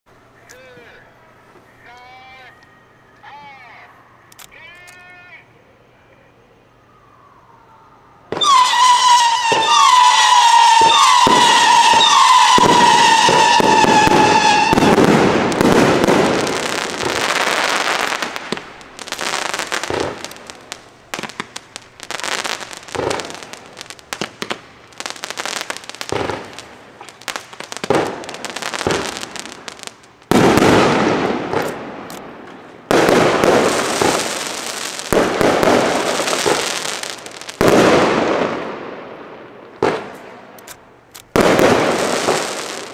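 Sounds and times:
firework whistles: 8.3 - 32.1, 32.9 - 38.6, 40.6 - 42.9
firework bursts and crackling: 8.3 - 42.9.

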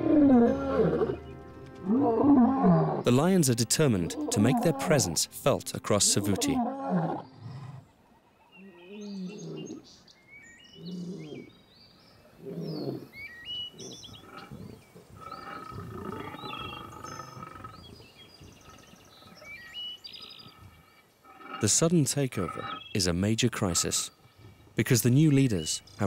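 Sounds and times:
lions roaring: 0.0 - 1.2, 1.8 - 3.1, 13.8 - 17.9
small birds chirping: 6.4 - 26.0.

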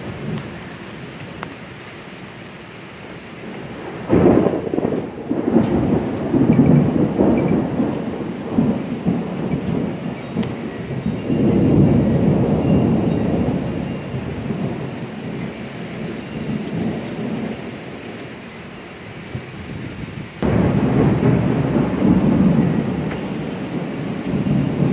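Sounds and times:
thunder rumbling: 0.0 - 24.9.

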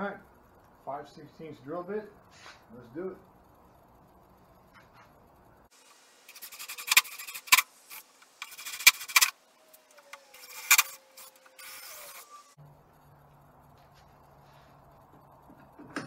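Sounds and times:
cordless drill boring fiberglass: 6.3 - 12.6.

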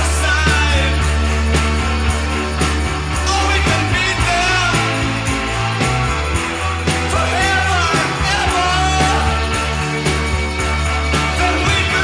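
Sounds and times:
rock music with singing: 0.0 - 12.0.

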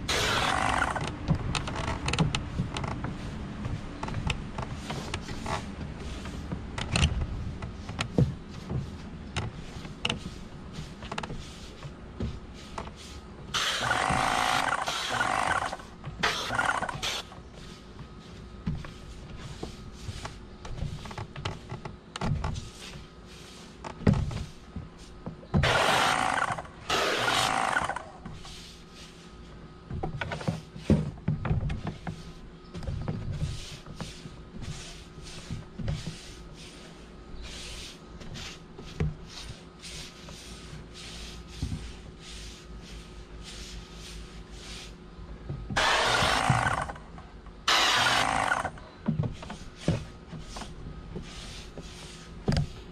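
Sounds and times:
brush scrubbing and knocking on stairs: 0.0 - 52.9.

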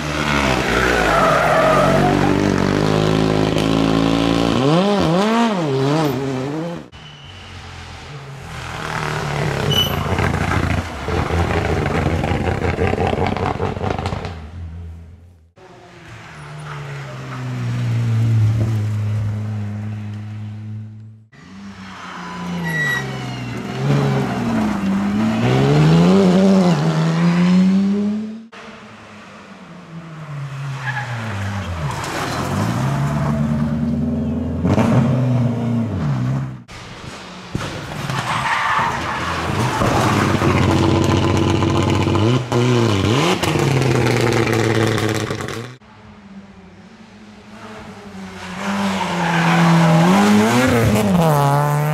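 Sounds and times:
rally car engines revving: 0.0 - 7.0, 15.9 - 36.7, 37.8 - 45.8, 46.7 - 51.9.

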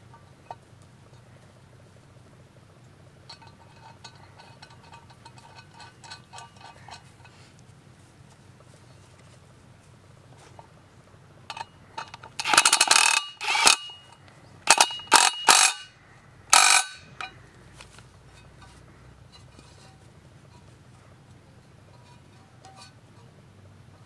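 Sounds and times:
power driver rattling bursts: 12.2 - 15.9, 16.5 - 17.3.

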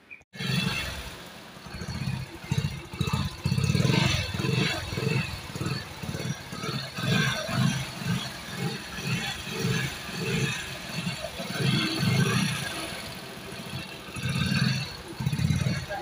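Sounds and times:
motorcycle engine idling: 0.1 - 16.0.

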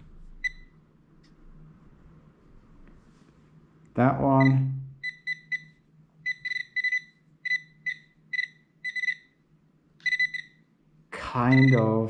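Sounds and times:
faint low hum: 0.0 - 12.0
metal detector short high beeps: 11.5 - 11.9.

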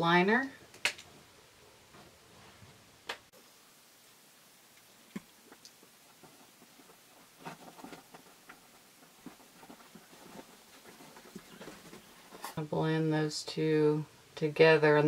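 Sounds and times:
handling noise: 5.1 - 12.6.

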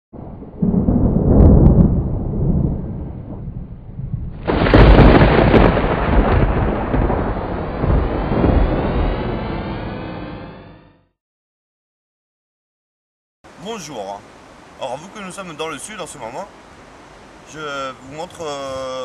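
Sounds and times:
thunder clap: 0.2 - 10.8
thunder rumbling: 0.2 - 10.8.

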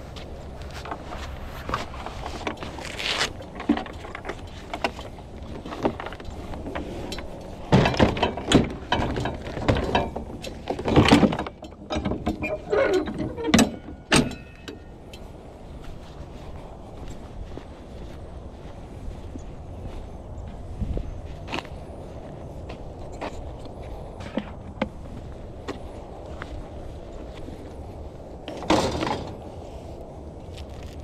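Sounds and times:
equipment knocking and rattling: 3.4 - 14.9.

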